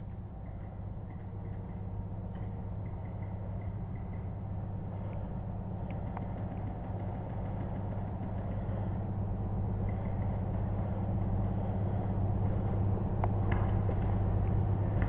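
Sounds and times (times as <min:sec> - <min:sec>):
engine droning: 0:00.0 - 0:15.0.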